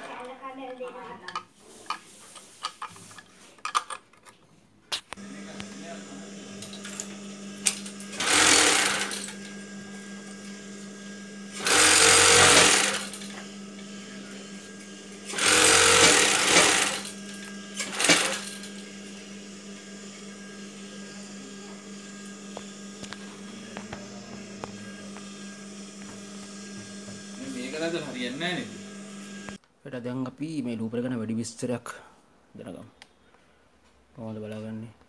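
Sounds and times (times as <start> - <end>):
sewing machine stitching: 5.2 - 10.9, 11.5 - 29.6
sewing machine motor hum: 5.2 - 29.6.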